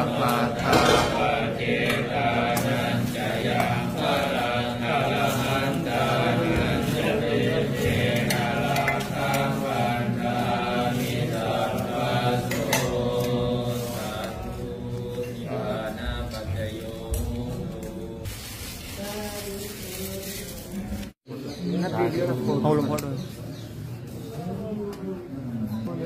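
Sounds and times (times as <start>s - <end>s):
voices chanting: 0.0s - 21.1s.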